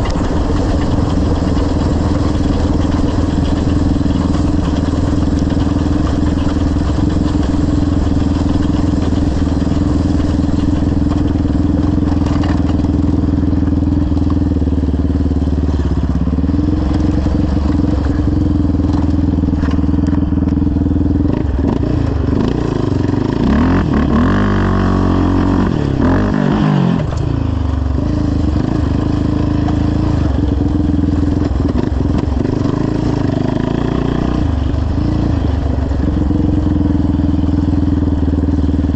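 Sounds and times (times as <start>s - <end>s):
quad engine running: 0.0s - 38.9s.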